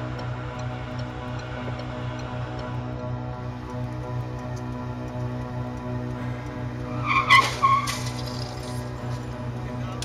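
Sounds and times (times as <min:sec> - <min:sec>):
light regular ticking: 0:00.0 - 0:07.1
music with pulsing bass beat: 0:00.0 - 0:10.0.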